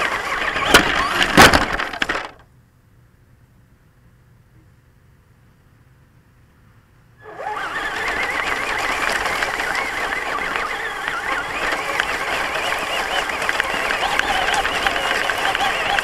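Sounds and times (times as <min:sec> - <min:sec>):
gear and tyre noise on grass: 0:00.0 - 0:16.0
electric motor whining: 0:07.2 - 0:16.0.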